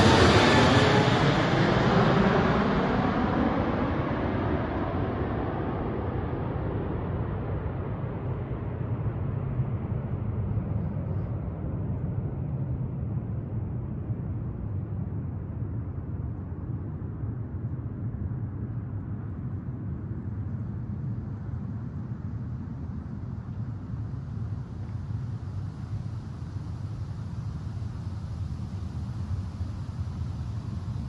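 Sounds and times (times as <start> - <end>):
jetliner roar receding: 0.0 - 11.1.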